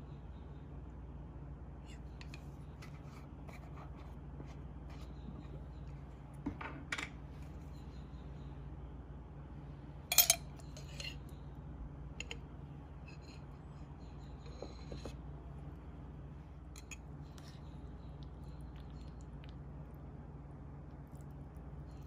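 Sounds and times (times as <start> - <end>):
low steady hum: 0.0 - 22.0
metal spoon clinking on glass jar: 10.1 - 11.2.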